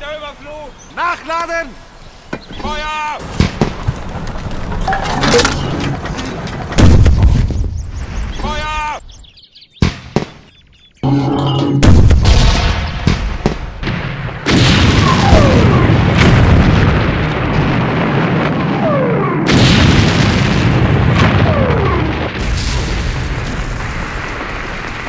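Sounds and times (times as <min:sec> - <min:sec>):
cannon booms and explosions: 0:03.2 - 0:04.9, 0:05.6 - 0:08.4, 0:09.8 - 0:25.0
continuous rumble: 0:03.3 - 0:07.3.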